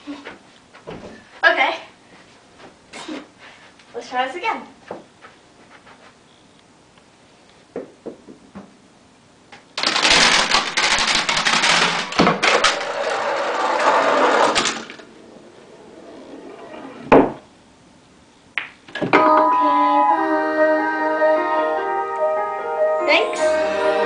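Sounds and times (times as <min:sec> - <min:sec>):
hard objects clattering and tumbling: 0:09.8 - 0:15.2.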